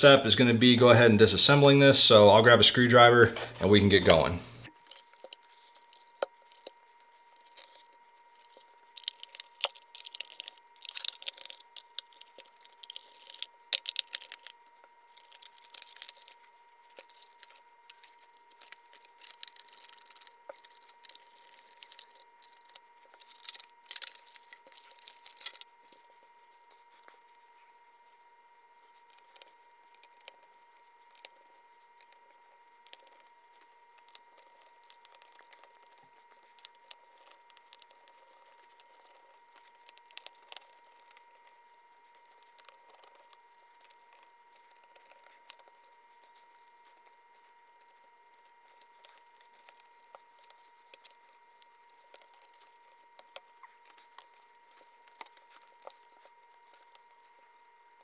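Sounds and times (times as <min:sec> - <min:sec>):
faint high hum: 0:00.0 - 0:58.0
plastic parts clicking and rattling: 0:07.4 - 0:26.1.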